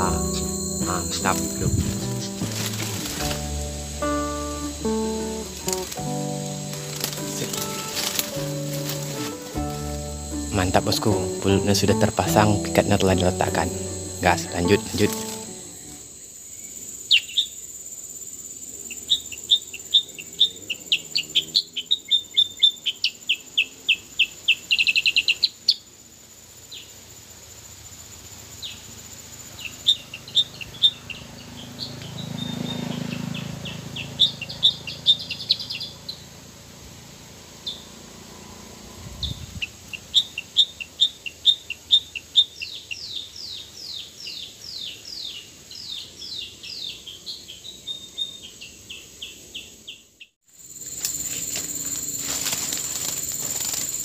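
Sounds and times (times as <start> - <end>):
birds chirping: 0.0 - 17.6, 29.5 - 36.4
insect buzzing: 0.0 - 42.5, 48.5 - 54.0.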